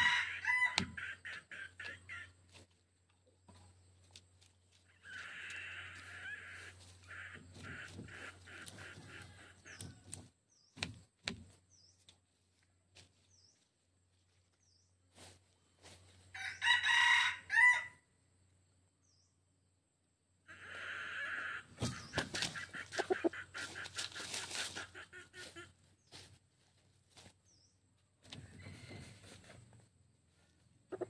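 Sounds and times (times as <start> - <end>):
rooster crowing: 0.0 - 1.0, 16.3 - 18.0
chicken clucking: 0.0 - 10.3, 20.5 - 27.3, 28.3 - 31.0
scratching in dry leaves: 21.9 - 27.4.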